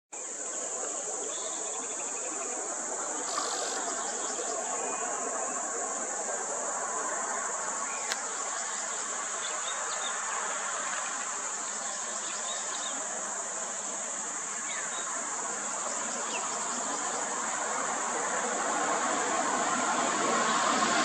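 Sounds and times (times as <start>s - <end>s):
insect chorus drone: 0.2s - 21.0s.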